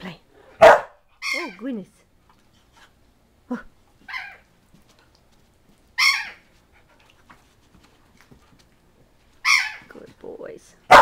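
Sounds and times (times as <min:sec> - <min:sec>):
dog barking: 0:00.6 - 0:01.0.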